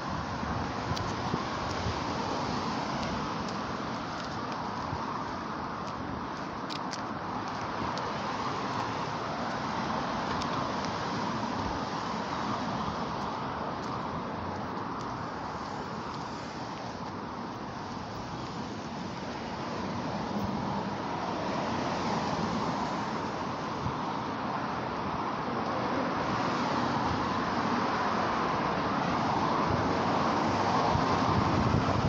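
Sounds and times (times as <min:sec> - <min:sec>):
road traffic passing: 0:00.0 - 0:32.0.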